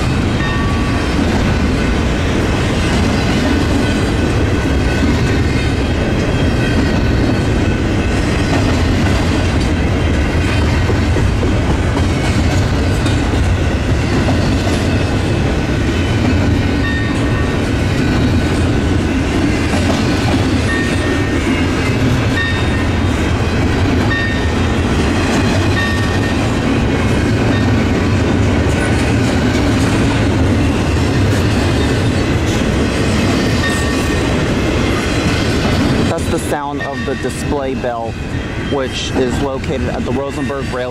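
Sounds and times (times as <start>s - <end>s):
freight train wheels rumbling on rails: 0.0s - 40.9s
wheels clacking over rail joints: 0.0s - 40.9s.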